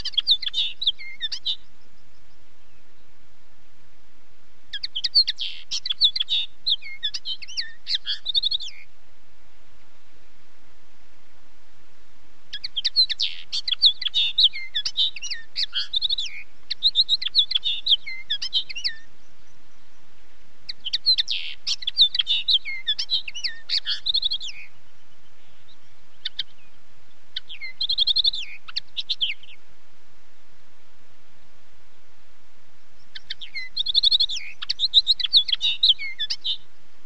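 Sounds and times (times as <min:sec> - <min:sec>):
bird singing rapid chirps: 0:00.0 - 0:03.1, 0:04.7 - 0:08.9, 0:12.5 - 0:20.1, 0:20.7 - 0:29.6, 0:33.0 - 0:36.7.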